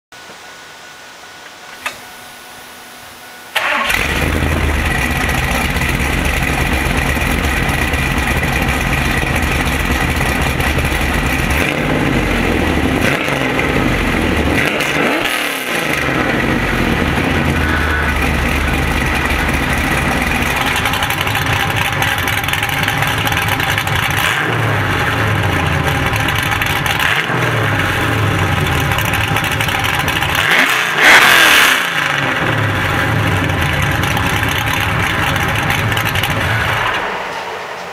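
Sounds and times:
engine throttle blips: 0:01.4 - 0:37.9
car engine starting and idling: 0:01.7 - 0:37.9.

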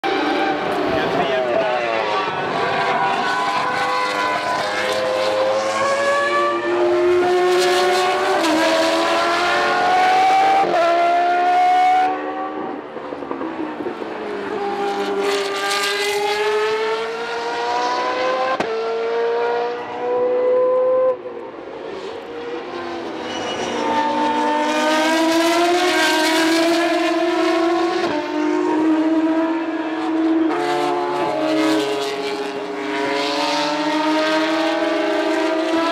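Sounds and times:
racing cars accelerating past: 0:00.1 - 0:35.9.

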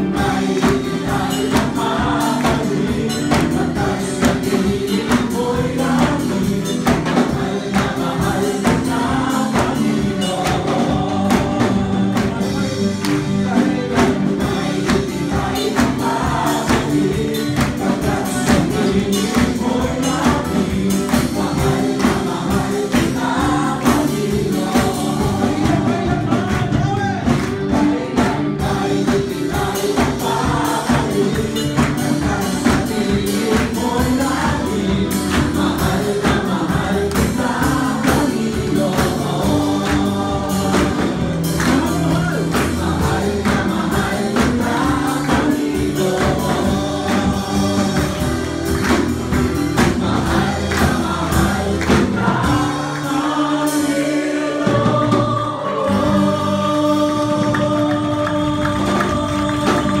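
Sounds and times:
congregation singing: 0:00.0 - 1:00.0
live band playing: 0:00.0 - 1:00.0
hands clapping: 0:01.5 - 0:03.6, 0:06.8 - 0:08.8, 0:11.3 - 0:14.2, 0:14.8 - 0:24.2, 0:25.6 - 0:28.4, 0:29.9 - 0:34.5, 0:35.2 - 0:52.1, 0:57.0 - 1:00.0.

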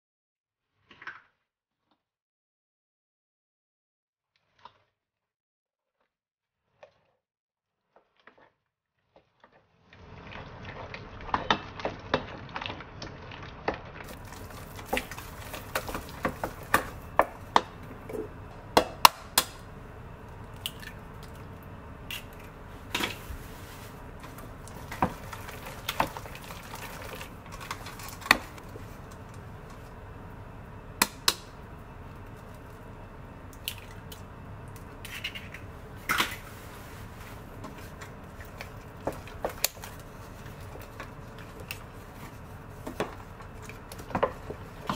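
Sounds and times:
spatula beating dough in saucepan: 0:09.1 - 0:44.9.

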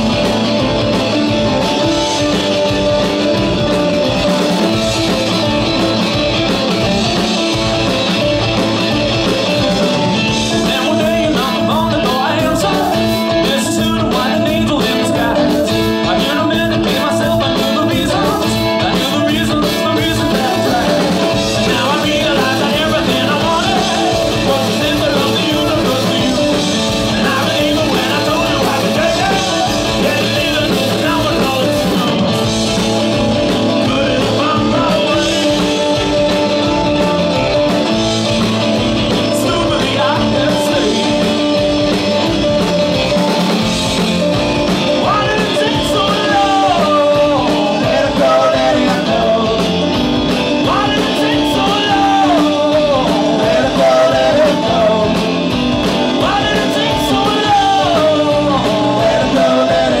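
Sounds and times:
rock band playing: 0:00.0 - 1:00.0
man singing: 0:10.2 - 0:36.8, 0:39.0 - 0:41.7, 0:44.9 - 1:00.0.

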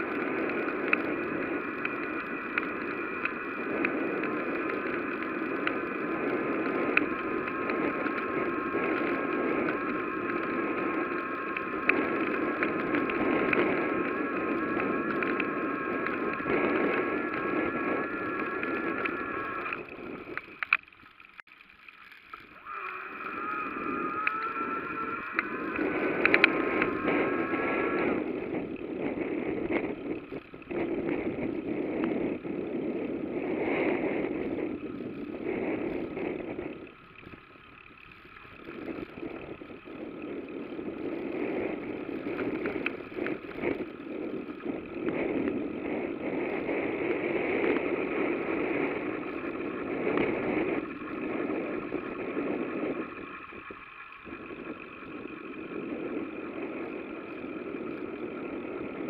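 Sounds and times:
bicycle road noise: 0:00.0 - 0:59.0
rushing wind: 0:00.0 - 0:59.0.

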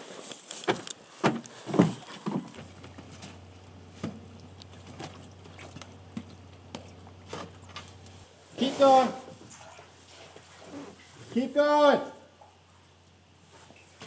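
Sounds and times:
sharp knocks and thumps: 0:00.6 - 0:08.2.

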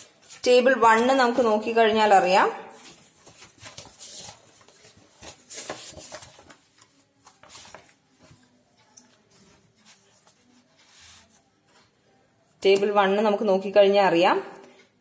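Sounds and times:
book pages rustling: 0:02.8 - 0:12.0.

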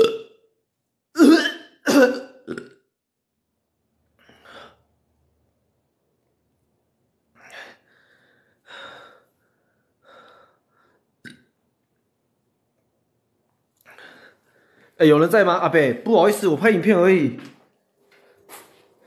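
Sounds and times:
man breathing heavily: 0:04.2 - 0:04.9, 0:07.4 - 0:11.1, 0:13.8 - 0:15.0.

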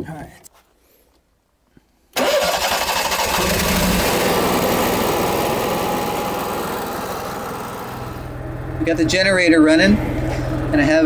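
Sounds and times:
generator engine running: 0:02.2 - 0:11.0.

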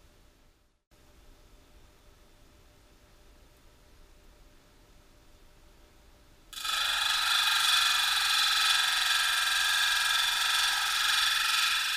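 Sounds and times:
stone grinding on diamond disc: 0:06.6 - 0:11.9.

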